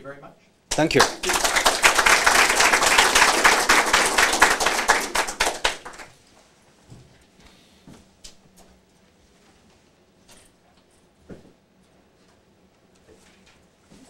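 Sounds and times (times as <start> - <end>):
audience applauding: 0.7 - 6.1.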